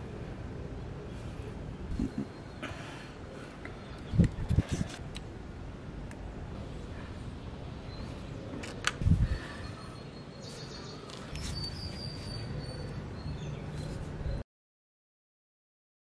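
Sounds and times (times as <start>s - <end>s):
outdoor background noise: 0.0s - 14.4s
faint high bird chirp: 7.8s - 14.4s.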